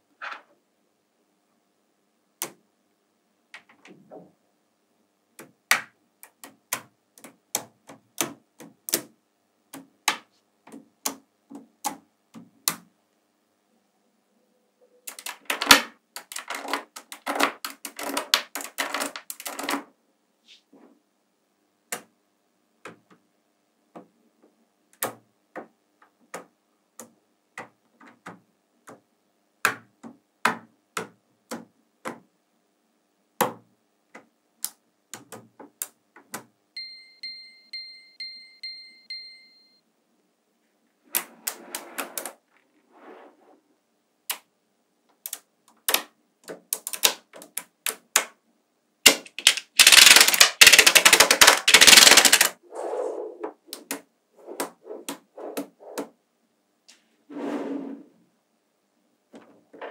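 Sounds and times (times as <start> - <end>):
magnetic balls clicking: 15.0 - 19.9, 45.1 - 48.4, 49.0 - 52.6.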